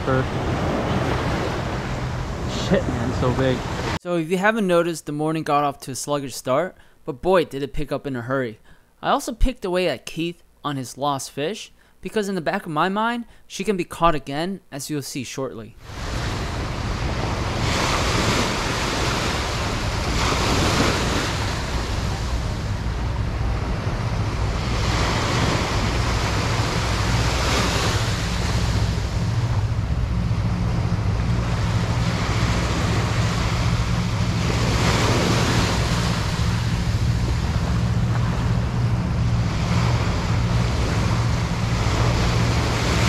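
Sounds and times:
surf washing up a beach: 0:00.0 - 0:04.0, 0:15.8 - 0:43.0
wind rumble on microphone: 0:15.8 - 0:43.0.

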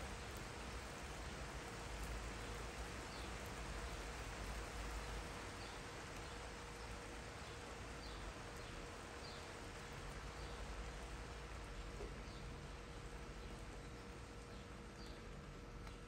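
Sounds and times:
rain falling: 0:00.0 - 0:16.0.

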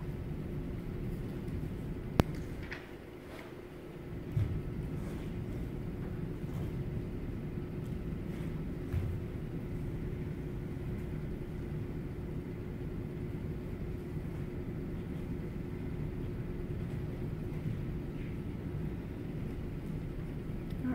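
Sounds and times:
faint hum tone: 0:00.0 - 0:20.9
low room rumble: 0:00.0 - 0:20.9
bare feet knocking on floor: 0:04.2 - 0:05.1.

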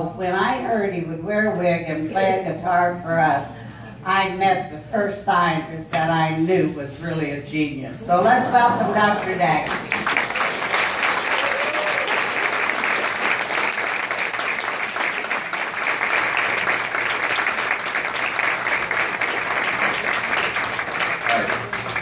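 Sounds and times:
audience applauding: 0:09.6 - 0:22.0.

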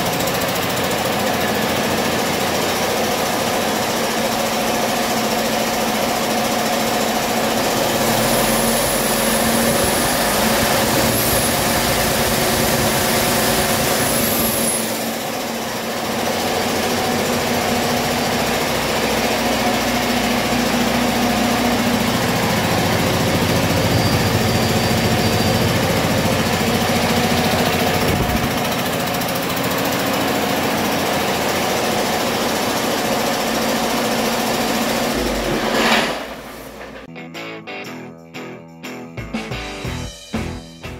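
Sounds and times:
diesel engine running: 0:00.0 - 0:37.1
faint high whistle: 0:23.8 - 0:25.9.

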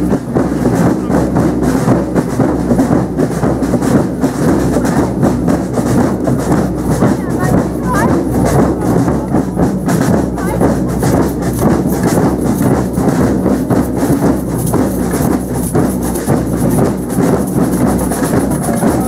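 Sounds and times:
marching drums beating: 0:00.0 - 0:19.0.

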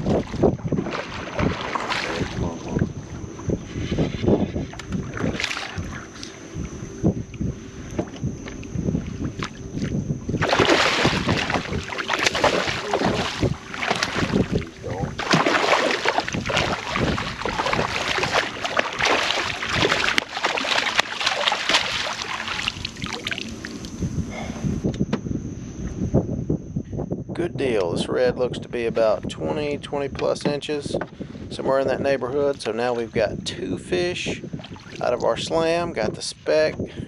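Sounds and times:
fish thrashing and splashing: 0:00.0 - 0:02.4, 0:04.7 - 0:06.1, 0:10.4 - 0:24.0, 0:34.6 - 0:35.0.

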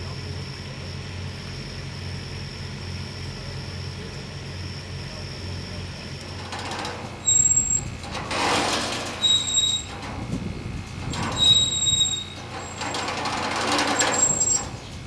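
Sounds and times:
windmill gearing squeaking: 0:06.3 - 0:15.0.

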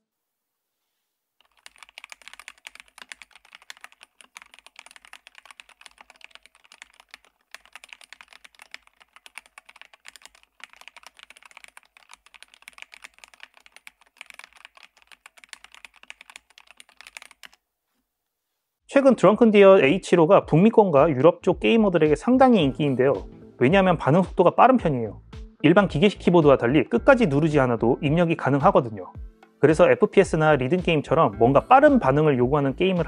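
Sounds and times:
fast typing key clacks: 0:01.4 - 0:17.6.

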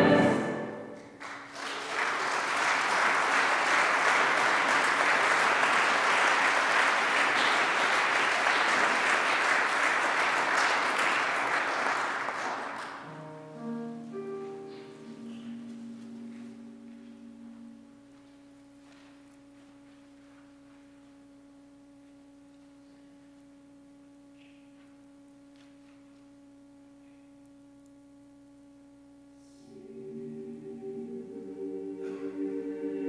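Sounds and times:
choir singing: 0:00.0 - 0:01.0, 0:29.6 - 0:33.0
steady pure held tone: 0:00.0 - 0:01.2, 0:02.8 - 0:33.0.

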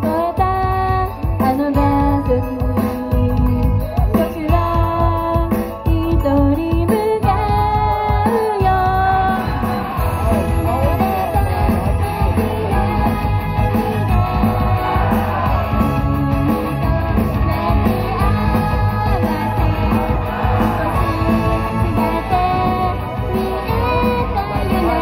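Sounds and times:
pop song with girls singing: 0:12.1 - 0:25.0.

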